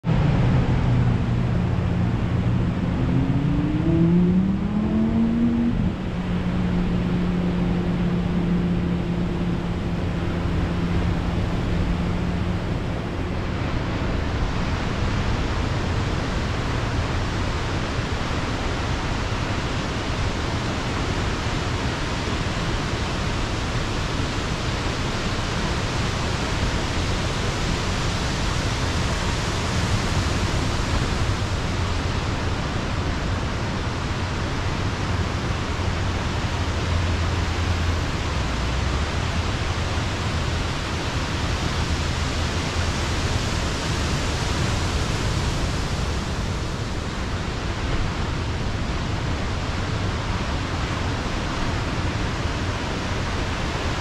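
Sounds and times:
low hum rising in pitch: 0.0 - 13.9, 35.1 - 43.0.

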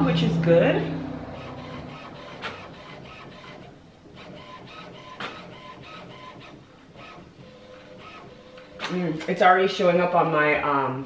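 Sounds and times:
inkjet printer mechanism pulsing: 1.0 - 9.4
sharp printer click: 1.4 - 7.2.

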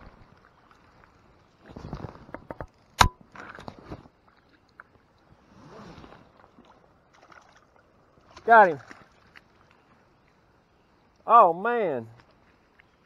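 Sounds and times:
fishing gear rustling and knocking: 0.0 - 4.2.

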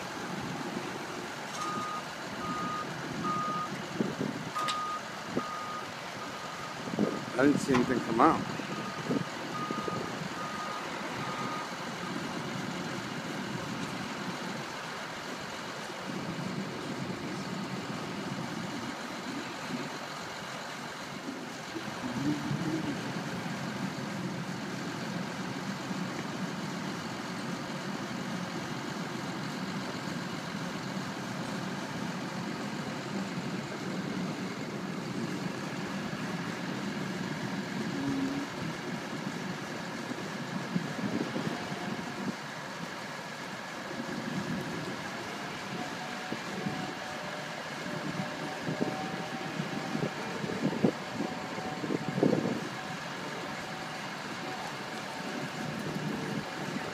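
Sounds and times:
street sweeper engine idling: 0.0 - 56.9
backup alarm beeps: 1.6 - 3.7, 4.6 - 8.0.

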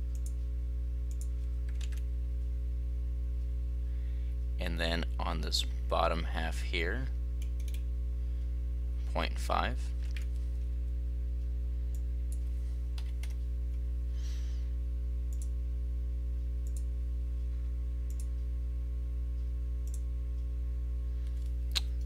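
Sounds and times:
low electrical hum: 0.0 - 22.0
computer mouse clicking: 0.1 - 0.4, 1.1 - 2.0, 7.4 - 7.8, 18.1 - 18.3.

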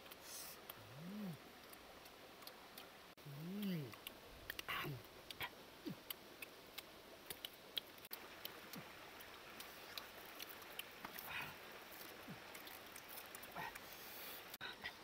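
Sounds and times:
stream hiss: 0.0 - 15.0.

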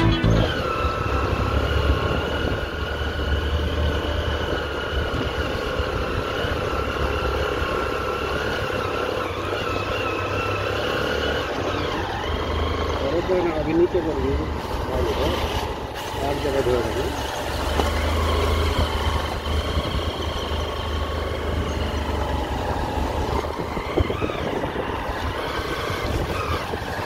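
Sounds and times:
motorcycle engine running: 0.0 - 27.0
wind rumble on microphone: 22.8 - 27.0.

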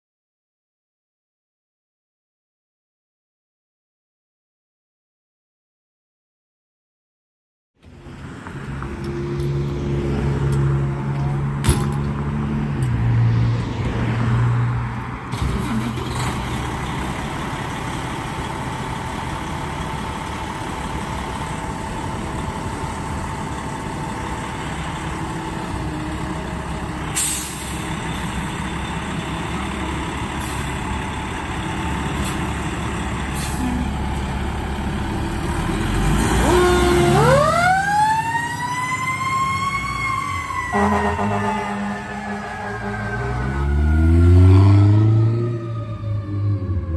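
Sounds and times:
diesel engine running: 15.3 - 38.2
air brake hisses: 27.2 - 27.9
siren wailing: 36.4 - 46.9.

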